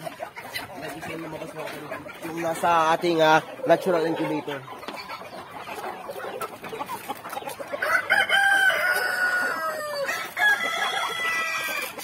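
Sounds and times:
rooster crowing: 7.8s - 12.0s.

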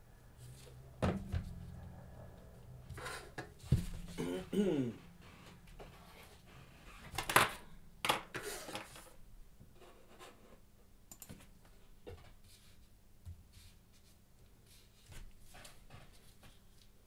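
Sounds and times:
scraping rustles on desk: 8.3s - 9.2s.

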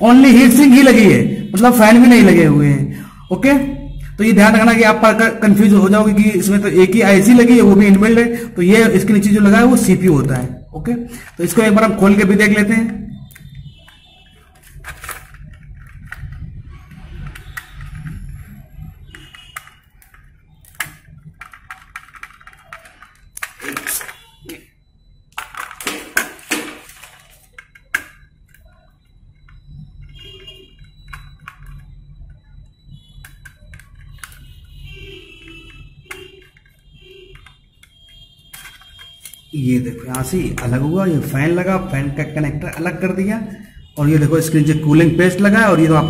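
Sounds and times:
clicks and knocks of small parts: 19.1s - 24.7s, 25.3s - 28.7s, 33.2s - 34.6s, 35.4s - 39.4s.

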